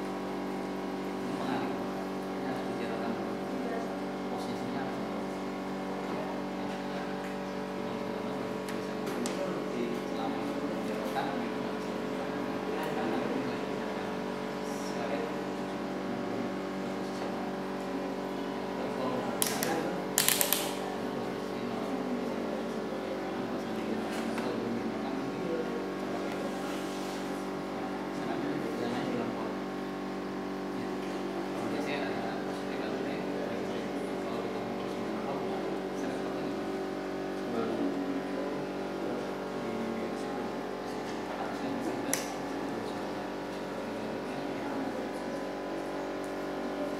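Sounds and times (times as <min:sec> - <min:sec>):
electrical hum: 0:00.0 - 0:46.9
rotary switch clicking: 0:19.4 - 0:20.8.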